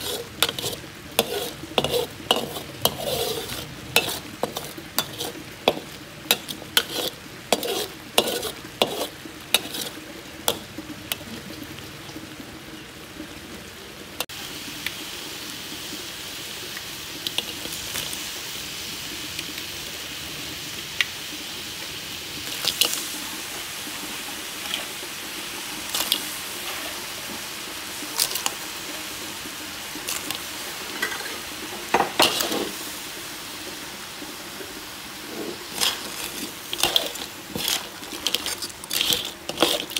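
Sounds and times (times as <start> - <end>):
metal spatula scraping wok: 0.0 - 10.8, 17.3 - 18.1, 22.4 - 23.1, 24.6 - 25.0, 25.8 - 27.0, 28.2 - 28.6, 30.1 - 32.9, 35.2 - 39.9
crab pieces clacking in wok: 0.0 - 11.2, 22.5 - 23.1, 25.9 - 26.4, 28.2 - 28.6, 30.1 - 31.3, 31.9 - 32.8, 35.6 - 39.9
frying sizzle: 0.0 - 39.9.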